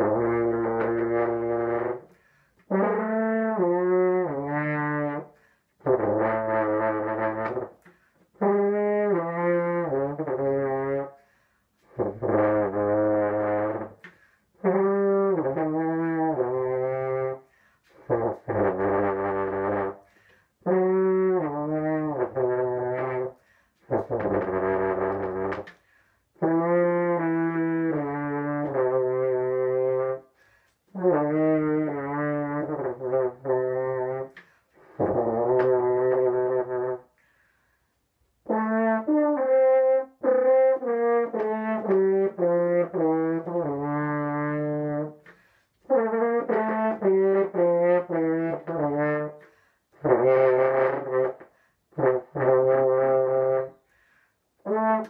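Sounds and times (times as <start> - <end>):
french horn playing: 0.0 - 25.8, 26.4 - 37.2, 38.4 - 53.9, 54.6 - 55.0
player breathing: 53.8 - 54.6.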